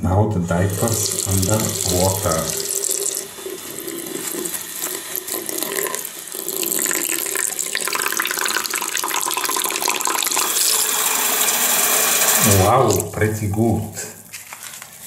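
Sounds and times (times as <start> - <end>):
tap water splashing: 0.8 - 10.9.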